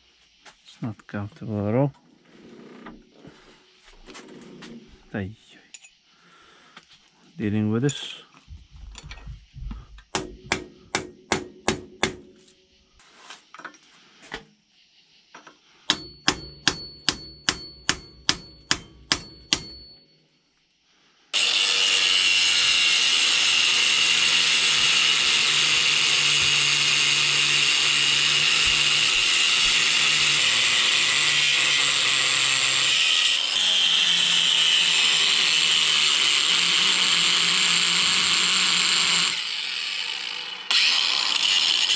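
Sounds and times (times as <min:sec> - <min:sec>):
hammer striking steel: 0:10.1 - 0:12.4, 0:15.9 - 0:20.2
power tool running: 0:21.4 - 0:41.9.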